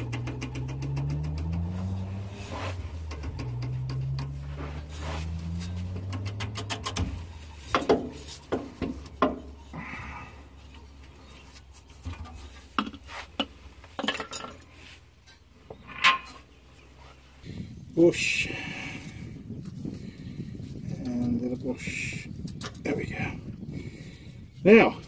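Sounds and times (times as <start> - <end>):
metal clinks and knocks: 11.9 - 16.5.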